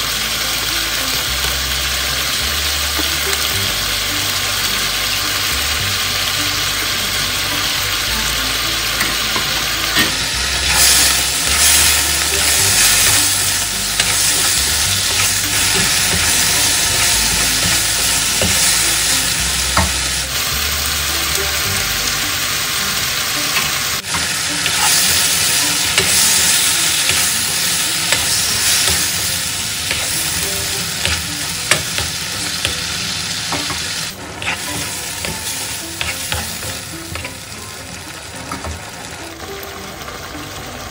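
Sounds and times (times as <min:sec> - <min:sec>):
chicken sizzling in hot oil: 0:00.0 - 0:40.9
spatula scraping wok: 0:06.8 - 0:20.6, 0:22.8 - 0:37.6.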